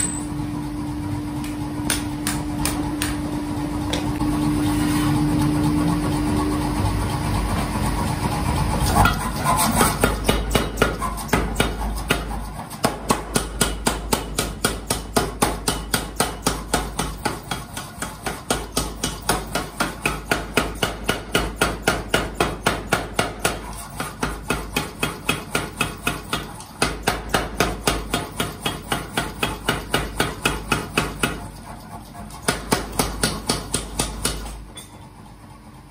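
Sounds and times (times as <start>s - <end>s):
machine hum: 0.0s - 10.7s
power hammer pounding steel: 1.9s - 3.3s, 9.0s - 31.6s, 32.3s - 34.9s.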